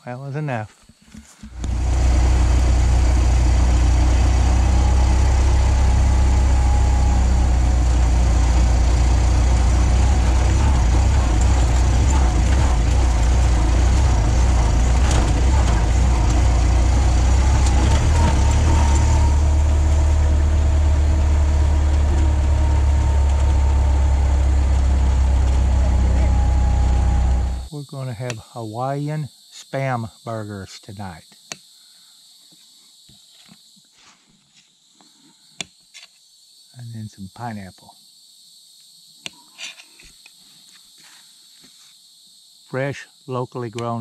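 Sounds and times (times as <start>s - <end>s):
faint whine: 1.4s - 28.3s
car engine running: 1.5s - 27.7s
road noise rumble: 1.5s - 27.7s.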